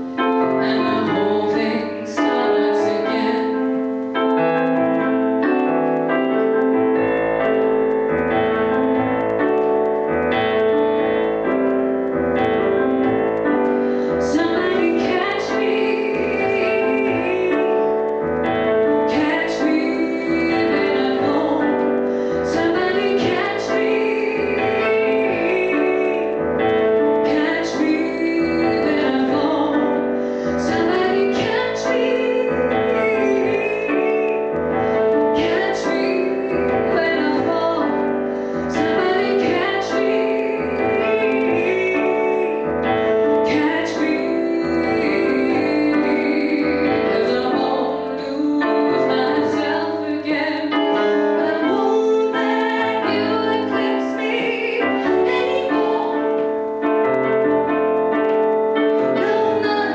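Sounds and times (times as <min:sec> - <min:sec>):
woman singing: 0:00.0 - 0:05.7, 0:12.8 - 0:59.9
digital piano chords: 0:00.0 - 0:59.9.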